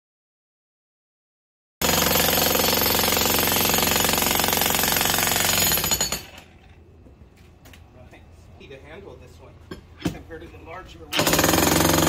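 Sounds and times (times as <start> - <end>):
jackhammer breaking concrete: 1.8 - 6.5, 11.1 - 12.0.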